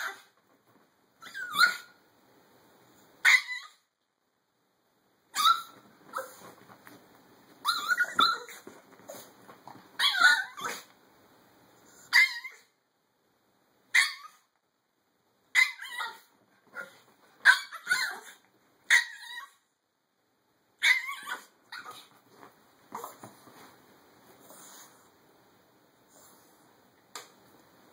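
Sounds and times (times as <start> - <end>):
small dog yappy barks: 1.2 - 1.9, 5.3 - 6.4, 10.0 - 10.9, 13.9 - 14.4, 15.5 - 19.6, 20.8 - 22.1.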